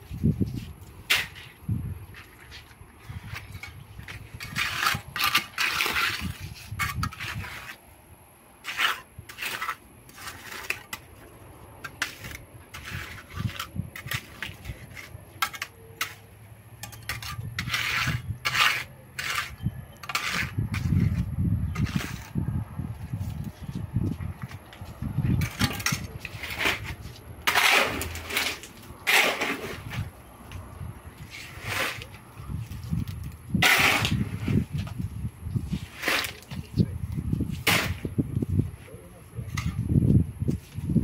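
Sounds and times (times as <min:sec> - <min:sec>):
trowel scraping wet concrete: 0:00.5 - 0:07.8, 0:08.6 - 0:22.4, 0:25.3 - 0:30.1, 0:31.2 - 0:35.0, 0:35.6 - 0:36.7, 0:37.4 - 0:38.2.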